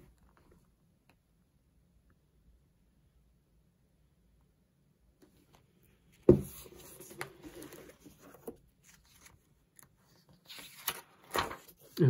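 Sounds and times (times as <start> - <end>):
page turning: 6.3 - 12.0
paper rustling: 6.3 - 12.0.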